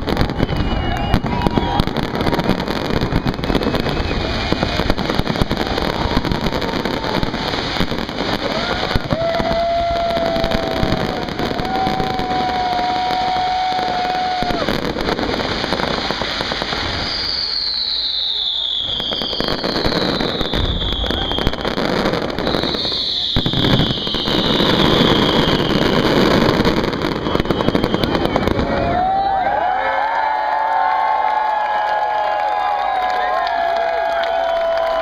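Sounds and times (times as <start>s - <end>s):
fireworks crackling and banging: 0.0s - 35.0s
falling whistle: 0.1s - 4.7s, 16.9s - 29.6s
long steady whistle: 0.1s - 4.9s, 8.8s - 14.8s, 16.6s - 29.9s.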